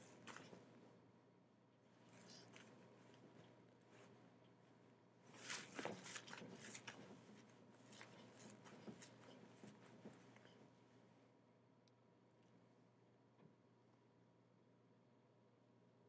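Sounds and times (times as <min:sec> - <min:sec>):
faint hum: 0:00.0 - 0:16.0
rustling and tapping: 0:05.4 - 0:10.6.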